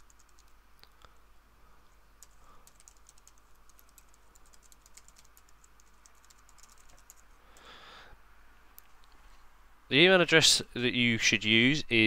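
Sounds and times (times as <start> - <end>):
typing on computer keyboard: 0.0 - 0.6, 2.2 - 7.7.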